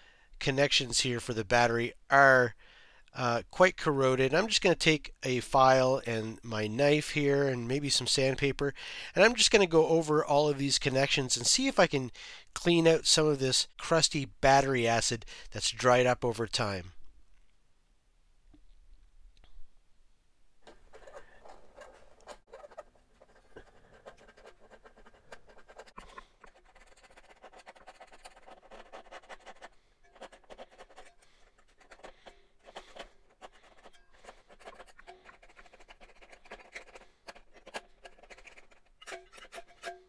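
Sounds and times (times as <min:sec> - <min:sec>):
metal blade scraping corrosion: 0:23.4 - 0:40.0.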